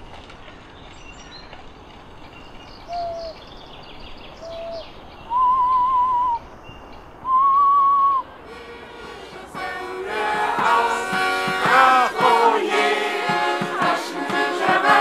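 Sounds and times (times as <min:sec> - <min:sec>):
birds chirping: 0:00.0 - 0:15.0
whistle-like music notes: 0:05.3 - 0:06.4, 0:07.3 - 0:15.0.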